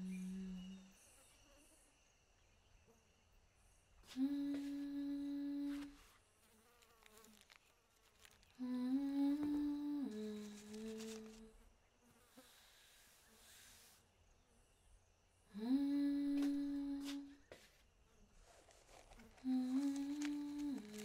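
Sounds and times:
person humming a slow tune: 0.0 - 1.1, 4.0 - 6.1, 8.3 - 11.6, 15.5 - 17.5, 19.3 - 21.0.

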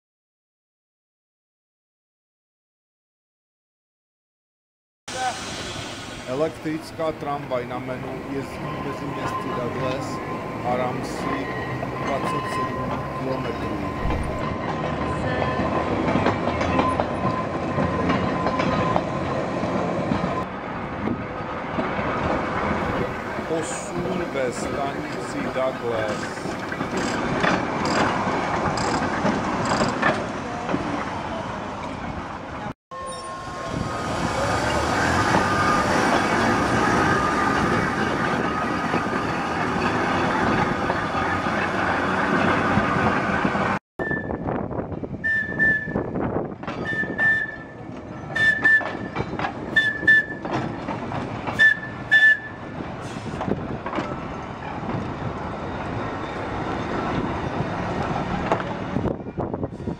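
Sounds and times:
steel wheels rumbling on rail: 5.1 - 59.9
short high-pitched squeals: 32.9 - 33.8.

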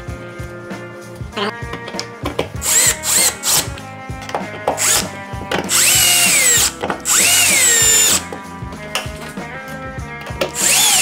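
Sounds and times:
cordless drill driving screws: 2.6 - 3.7, 4.8 - 5.1, 5.7 - 8.2, 10.5 - 11.0.

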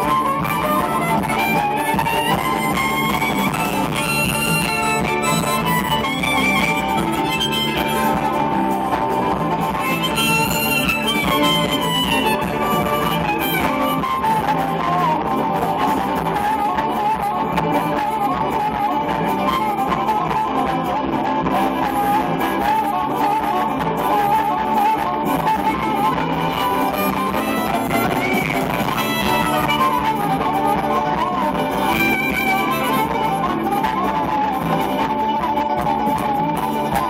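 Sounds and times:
bass: 0.0 - 37.0
fiddle: 0.0 - 37.0
guitar: 0.0 - 37.0
harmonica: 0.0 - 37.0.

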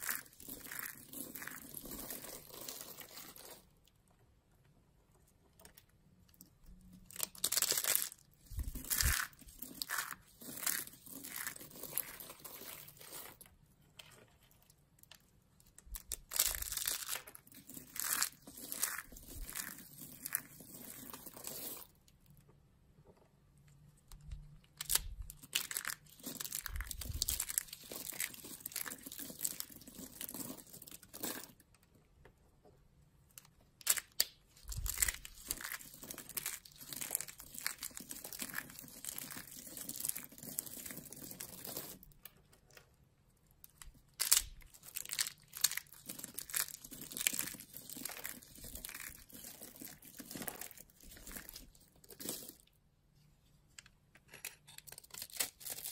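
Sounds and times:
soap shavings crackling in hands: 15.9 - 21.9, 24.8 - 31.6, 43.7 - 52.7.

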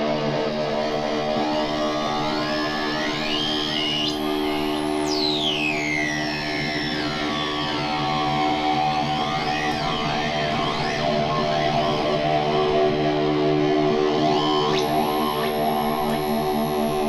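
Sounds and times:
layered electronic drone: 13.7 - 17.0.

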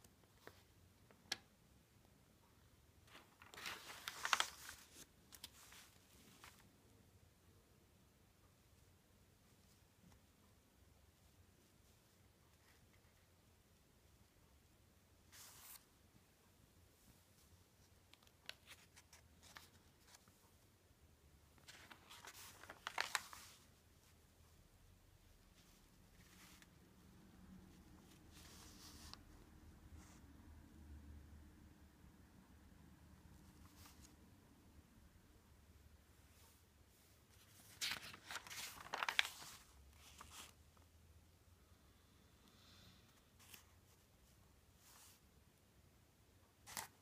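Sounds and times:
newspaper rustling: 3.1 - 6.7, 21.6 - 23.8, 37.3 - 40.6.

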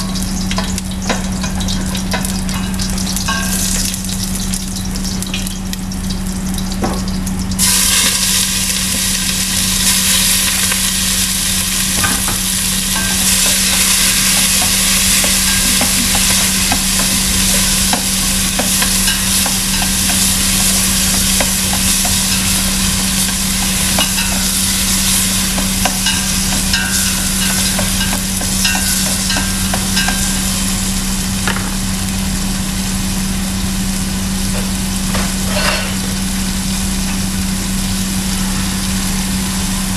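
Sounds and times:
oil sizzling in a pot: 0.0 - 39.9
steady low hum: 0.0 - 39.9
chopsticks ticking against pot: 12.8 - 30.4.

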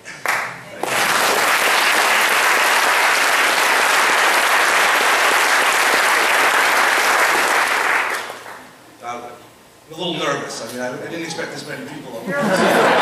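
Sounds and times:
audience applauding: 0.2 - 8.7.

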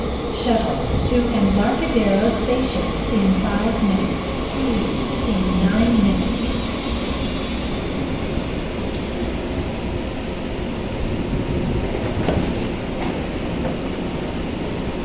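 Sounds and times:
light rail train rumble and hiss: 0.0 - 15.0
train clunks: 11.8 - 13.9.

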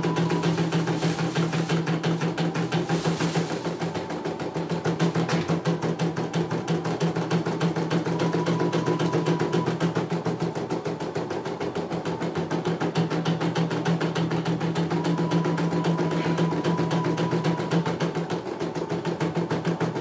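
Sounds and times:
machine hum: 0.0 - 12.0, 14.4 - 18.1.

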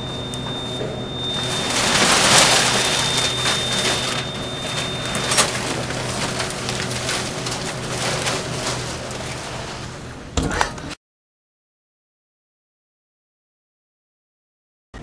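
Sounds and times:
thin high tone: 0.0 - 8.4
newspaper rustling and crinkling: 1.3 - 10.0.

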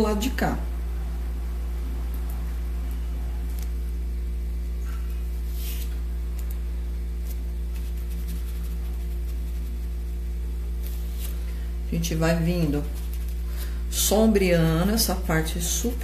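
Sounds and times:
low electrical hum: 0.0 - 16.0
scratchy brush strokes: 5.4 - 6.5, 7.2 - 14.0.

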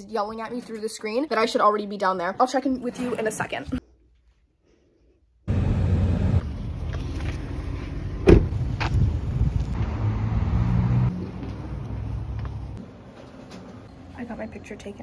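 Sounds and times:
engine hum: 5.5 - 14.2
road traffic rumble: 5.5 - 15.0.

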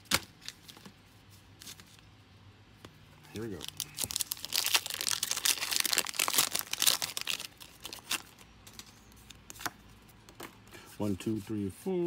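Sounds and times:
foil wrapper tearing and crinkling: 3.5 - 8.4.

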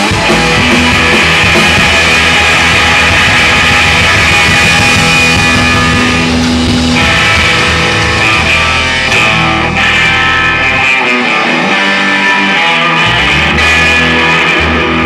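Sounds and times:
drum kit: 0.0 - 15.0
electric guitar: 0.0 - 15.0
upright bass: 0.0 - 15.0.

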